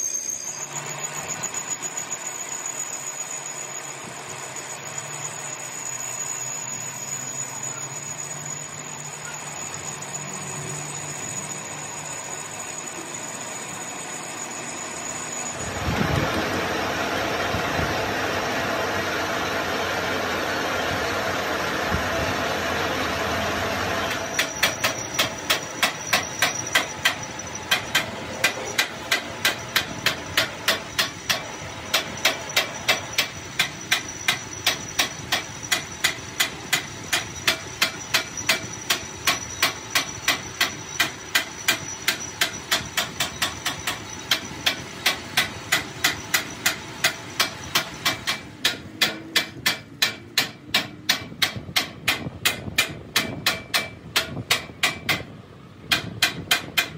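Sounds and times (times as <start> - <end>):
steady mechanical noise: 0.0 - 56.9
hammer striking metal: 24.1 - 55.3, 55.9 - 56.9.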